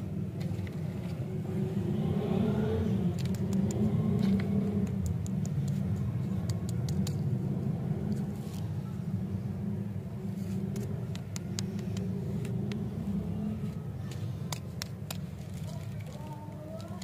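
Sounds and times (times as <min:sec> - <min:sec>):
steady low rumble: 0:00.0 - 0:17.0
paper wrapper crinkling: 0:14.5 - 0:17.0.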